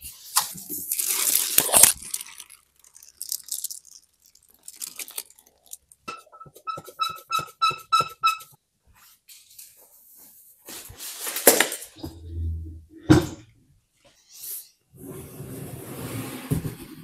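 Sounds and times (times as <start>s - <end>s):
cardboard rustling: 0.4s - 4.0s
cart squeaking rhythmically: 6.1s - 8.5s.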